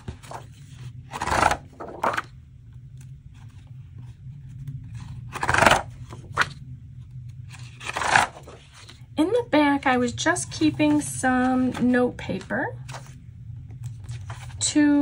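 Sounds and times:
paper rustling: 0:00.0 - 0:02.3, 0:07.5 - 0:09.0, 0:10.6 - 0:13.2, 0:13.8 - 0:14.6.

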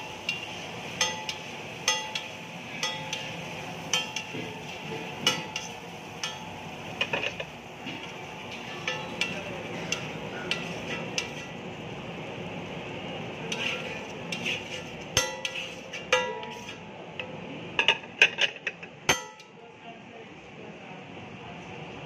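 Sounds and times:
metal spatula scraping griddle: 0:00.2 - 0:06.4, 0:07.0 - 0:11.6, 0:13.3 - 0:16.9.

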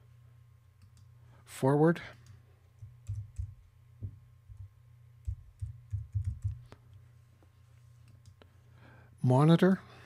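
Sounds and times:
computer keyboard typing: 0:02.2 - 0:03.7, 0:05.2 - 0:06.6.

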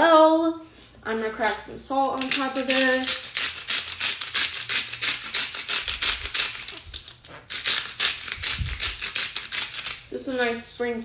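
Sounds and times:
salt grinder grinding clicks: 0:02.0 - 0:10.1.

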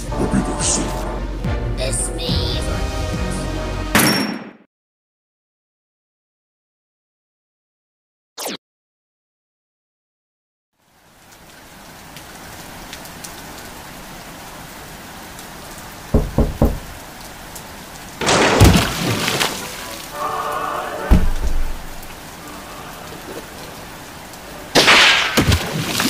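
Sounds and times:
rain falling: 0:10.8 - 0:26.0
low thumps: 0:16.1 - 0:17.1, 0:21.1 - 0:22.2
thunder clap: 0:21.1 - 0:22.3.

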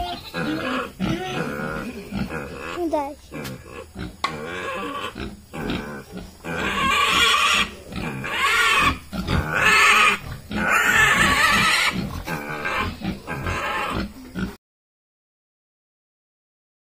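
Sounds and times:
piglet squealing: 0:00.0 - 0:03.0, 0:03.6 - 0:14.1.

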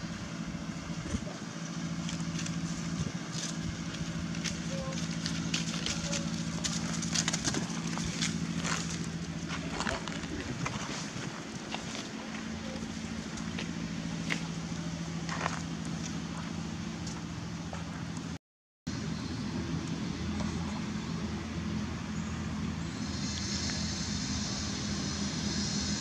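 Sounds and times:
low engine hum: 0:00.0 - 0:26.0
dry leaves rustling: 0:00.4 - 0:17.3.

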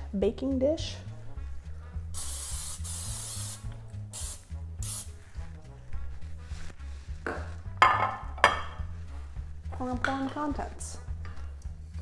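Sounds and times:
cooking spray hissing: 0:02.1 - 0:05.2.

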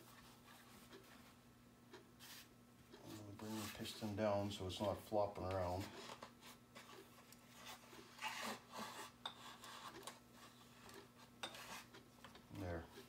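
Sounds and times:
cloth rubbing and rustling on metal: 0:02.2 - 0:11.9.

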